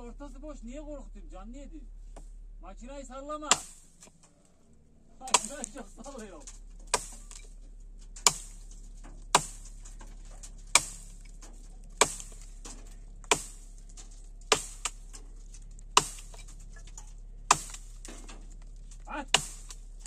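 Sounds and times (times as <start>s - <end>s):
faint low steady hum: 0.0s - 20.0s
sharp knocks: 6.8s - 7.4s, 8.2s - 8.7s, 9.3s - 15.2s, 16.0s - 18.4s.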